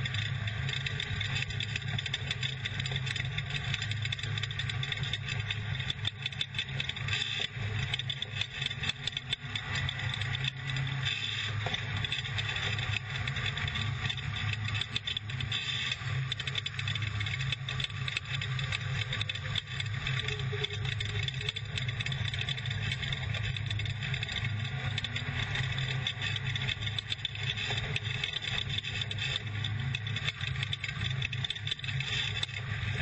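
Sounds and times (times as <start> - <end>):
rattling and clatter: 0.0 - 33.0
truck engine running: 0.0 - 33.0.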